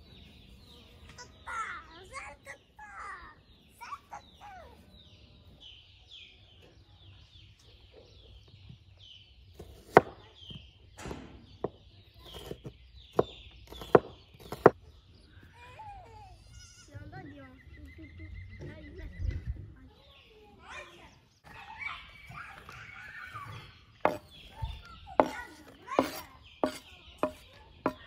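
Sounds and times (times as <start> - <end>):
bird chirping: 0.0 - 28.0
knife chopping on wooden board: 9.6 - 10.6, 11.6 - 14.8, 24.0 - 24.3, 25.2 - 28.0.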